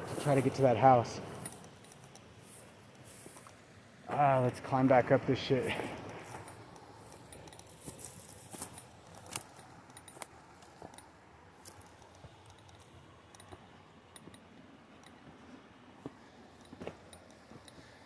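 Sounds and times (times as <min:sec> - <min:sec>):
footsteps on rocky slope: 0:00.0 - 0:18.0.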